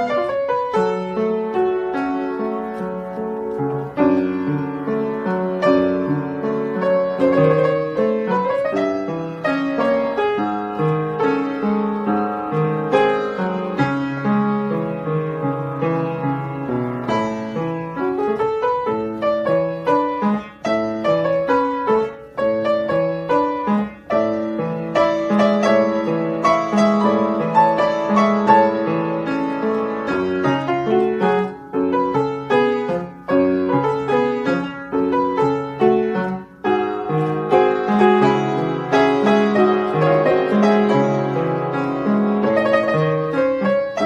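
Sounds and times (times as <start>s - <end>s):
solo classical piano: 0.0s - 44.0s.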